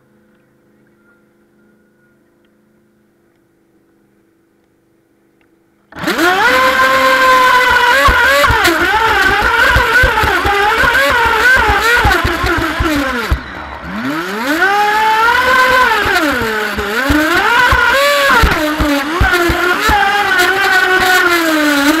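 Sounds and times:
electric motor whining: 5.9s - 22.0s.

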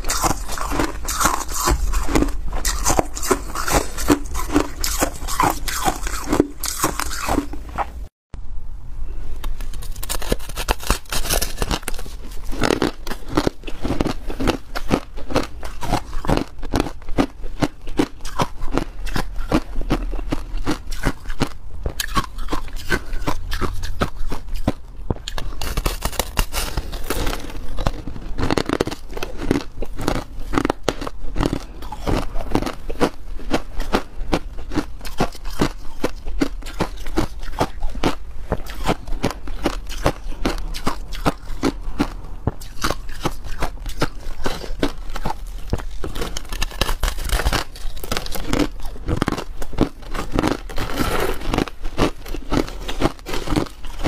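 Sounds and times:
ice being crunched: 9.8s - 14.2s, 25.2s - 30.7s, 44.0s - 54.0s.

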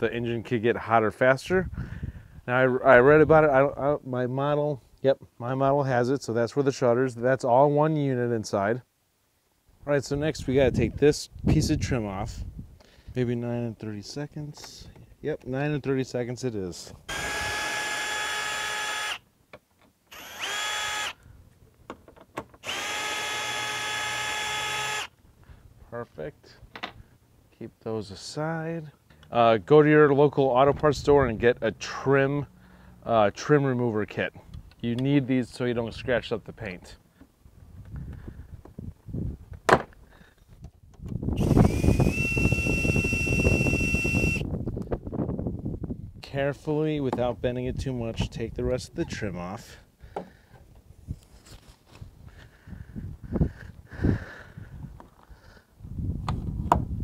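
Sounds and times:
cordless drill whining: 17.1s - 19.2s, 20.1s - 21.3s, 22.6s - 25.1s, 41.4s - 44.5s.

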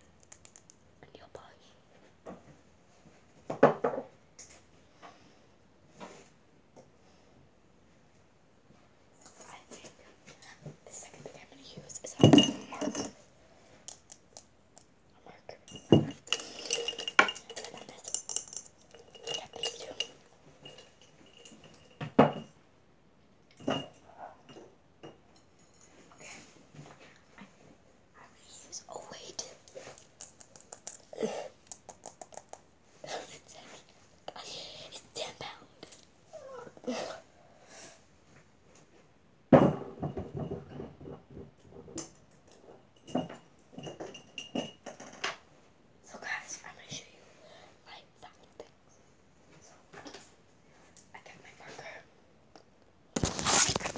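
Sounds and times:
objects clinking and knocking: 12.0s - 13.2s, 15.6s - 22.6s, 23.5s - 26.2s, 39.6s - 45.4s
faint metallic ringing: 15.6s - 22.7s.

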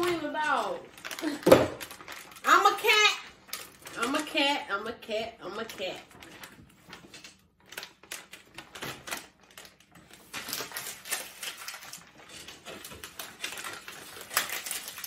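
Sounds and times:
food pouch crinkling and tearing: 0.8s - 2.5s, 7.4s - 15.0s.

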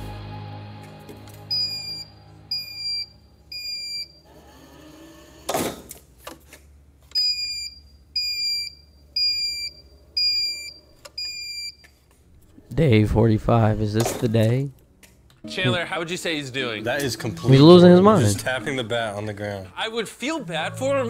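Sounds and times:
electronic warning beeps: 1.5s - 4.3s, 7.2s - 11.9s.

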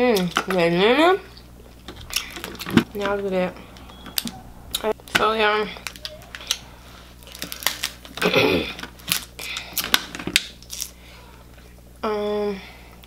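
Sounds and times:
crab shells cracking: 7.3s - 11.0s.

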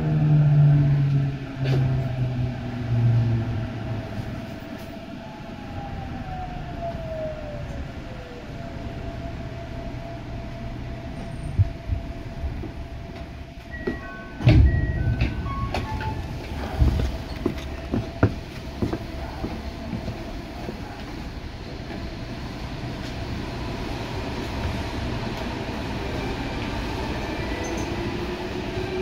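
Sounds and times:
steady train rumble: 0.0s - 29.0s
descending tone: 13.7s - 18.2s.

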